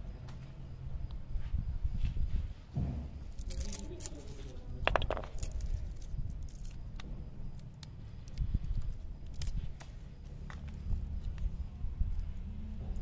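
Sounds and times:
garlic skins crackling: 3.3 - 11.5.

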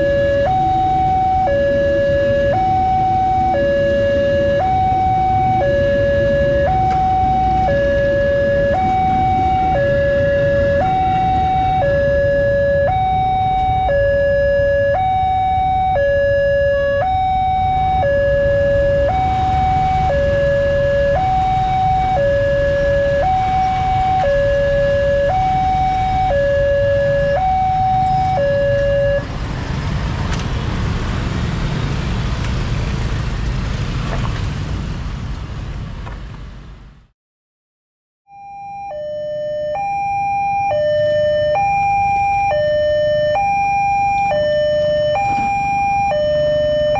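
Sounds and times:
level crossing two-tone alarm: 0.0 - 29.3, 38.3 - 46.9
motorbikes and cars passing: 0.0 - 37.0.

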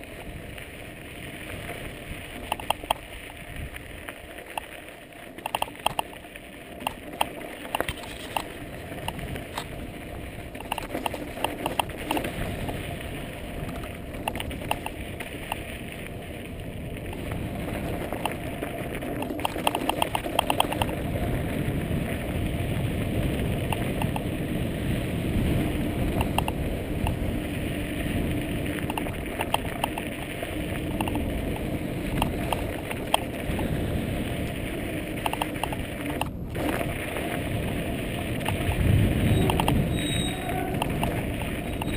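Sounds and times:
bike tyres crunching over gravel: 0.0 - 41.9
bike clicks and rattles: 0.1 - 41.9
rushing low rumble: 20.1 - 41.9.

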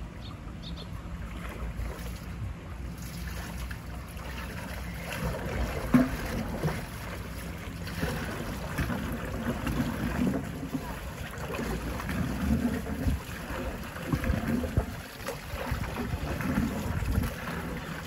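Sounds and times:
water sloshing and splashing: 0.1 - 18.0
wind on microphone: 12.5 - 18.0.

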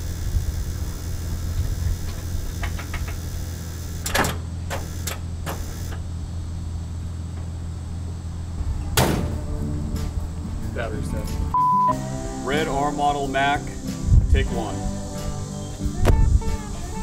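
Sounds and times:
low engine hum: 0.0 - 12.5
heavy clunk: 8.6 - 10.2.

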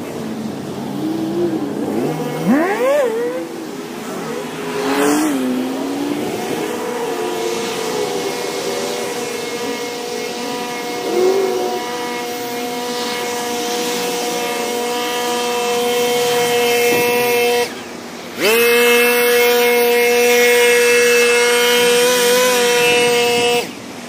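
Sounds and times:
leaf blower engine whining: 0.0 - 24.0.

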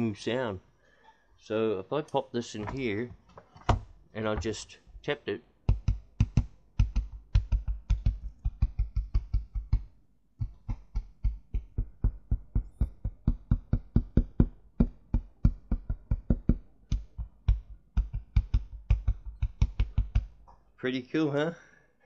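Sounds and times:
fingers tapping speaker woofer: 5.6 - 20.6.

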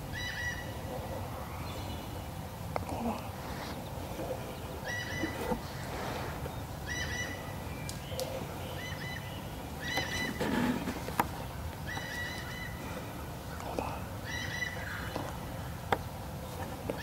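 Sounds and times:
wild turkeys calling: 0.0 - 2.3, 3.4 - 17.0.

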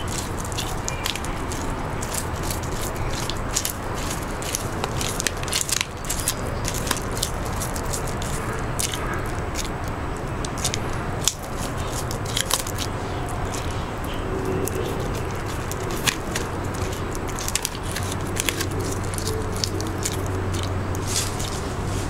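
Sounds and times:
crackles of leaves being bitten: 0.0 - 22.0
steady low hum: 0.0 - 22.0.

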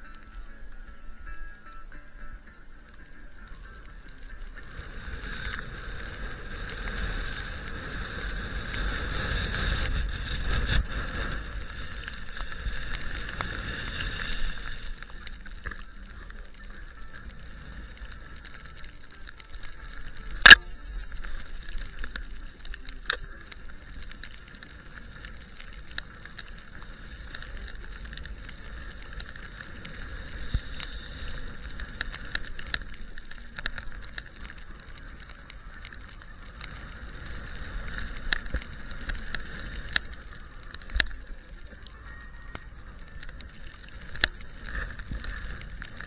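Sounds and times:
wind rumbling on camera: 0.0 - 46.0
skis hissing through powder snow: 3.4 - 46.0
sharp crack: 19.8 - 23.4.

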